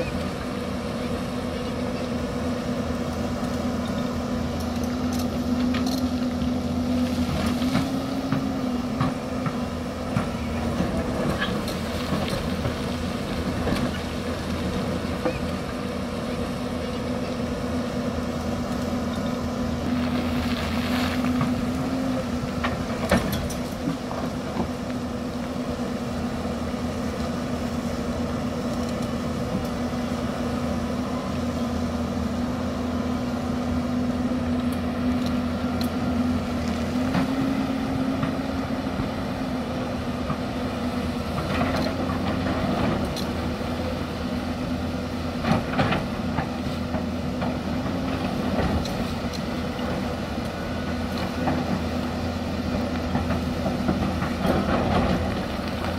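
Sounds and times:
excavator diesel engine running: 0:00.0 - 0:55.9.

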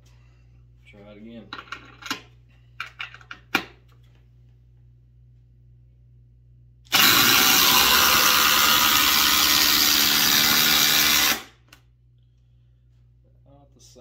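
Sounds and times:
impact drivers hammering screws: 0:06.9 - 0:11.5.

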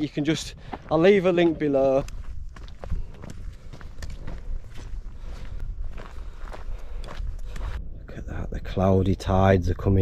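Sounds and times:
footsteps on stony path: 0:00.0 - 0:07.9.

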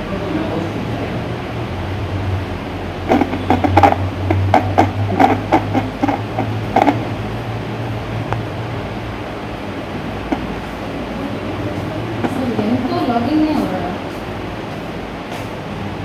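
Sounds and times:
soft taps: 0:10.3 - 0:10.5.

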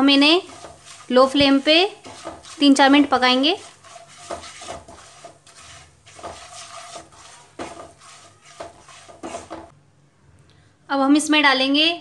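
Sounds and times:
wooden spatula scraping a pan: 0:00.0 - 0:09.7.

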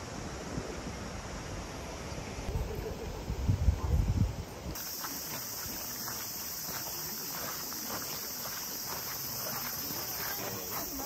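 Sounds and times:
wind on microphone: 0:02.5 - 0:04.8
cicadas droning: 0:04.7 - 0:11.0
faint footsteps: 0:04.7 - 0:11.0.

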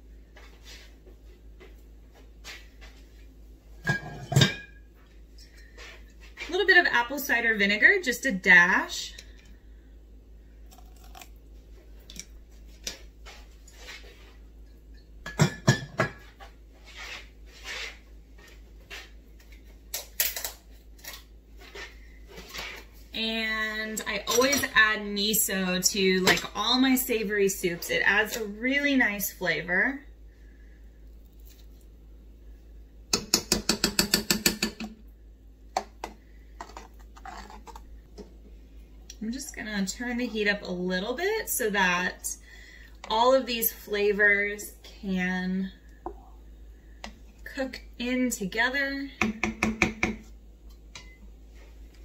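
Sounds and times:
kitchenware knocking and clinking: 0:03.8 - 0:04.8, 0:15.2 - 0:16.2.

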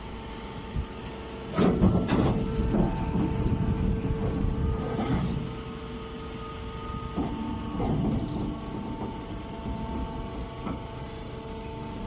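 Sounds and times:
baler motor and pump humming: 0:00.0 - 0:12.0
machine clunks: 0:01.5 - 0:03.5.

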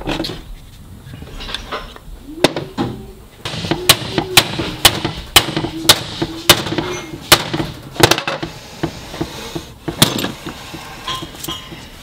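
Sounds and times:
hammer striking metal driver: 0:03.5 - 0:08.5.

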